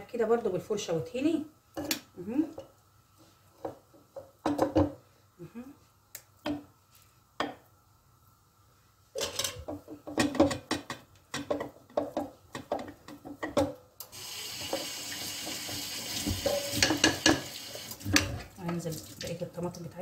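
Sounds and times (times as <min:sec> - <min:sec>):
kitchenware clattering: 0:09.2 - 0:13.8, 0:14.6 - 0:18.8
tap water running into sink: 0:14.1 - 0:19.4.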